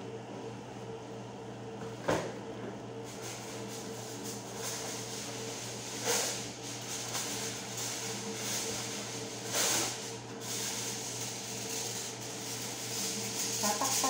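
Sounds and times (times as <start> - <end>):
mechanical hum: 0.0 - 14.0
scrape or rustle: 3.1 - 14.0.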